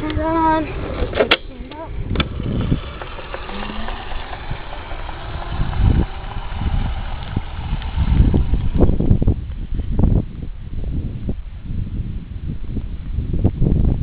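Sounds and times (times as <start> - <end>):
wind buffeting microphone: 0.0 - 14.0
electric scooter motor whine: 0.2 - 10.8.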